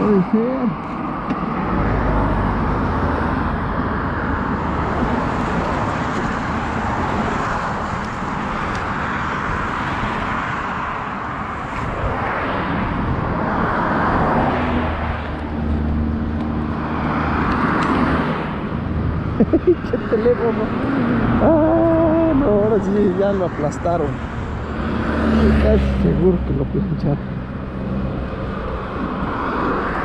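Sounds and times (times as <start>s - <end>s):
cars passing on highway: 0.0s - 30.0s
low engine hum: 11.9s - 30.0s.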